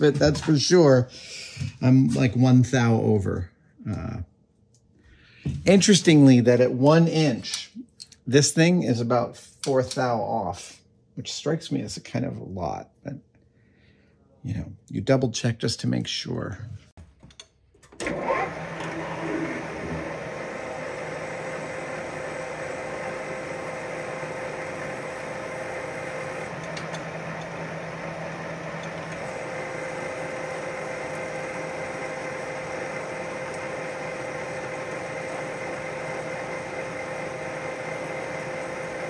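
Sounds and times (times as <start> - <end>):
lathe drilling metal: 18.0 - 39.0
machine hum with whine: 18.0 - 39.0.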